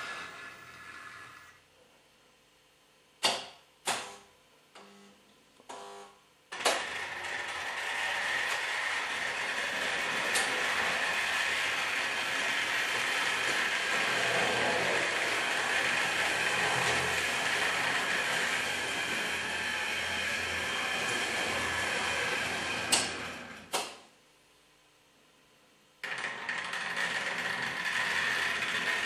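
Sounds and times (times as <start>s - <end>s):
model train whirring on track: 0.0s - 1.5s, 6.6s - 23.6s, 26.0s - 29.0s.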